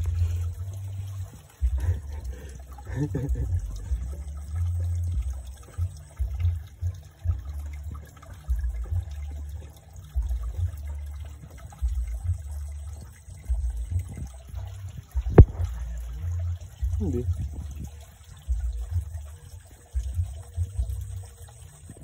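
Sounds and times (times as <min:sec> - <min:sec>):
low uneven rumble: 0:00.0 - 0:22.0
stream water sloshing: 0:00.0 - 0:22.0.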